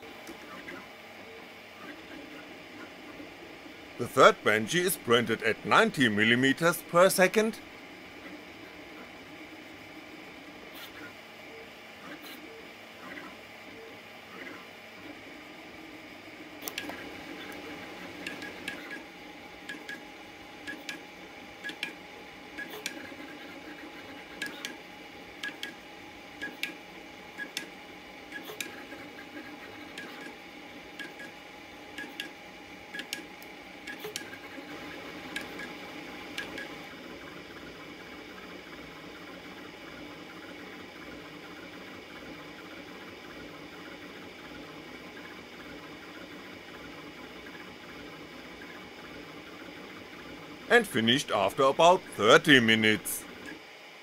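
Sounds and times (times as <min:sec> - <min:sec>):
fan hiss: 0:03.0 - 0:08.0, 0:48.7 - 0:53.6
print head ticks: 0:19.6 - 0:20.0, 0:20.6 - 0:21.0, 0:22.6 - 0:24.8, 0:25.4 - 0:25.8.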